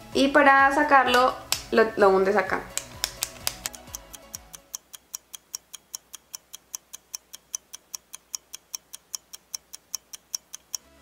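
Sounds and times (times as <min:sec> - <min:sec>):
click pen clicking: 0:02.7 - 0:04.4.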